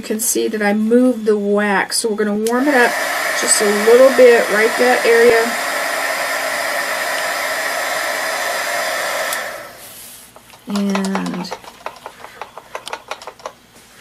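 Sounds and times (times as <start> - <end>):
person speaking: 2.4 - 5.7, 10.6 - 12.4
heat gun blowing: 2.4 - 10.3.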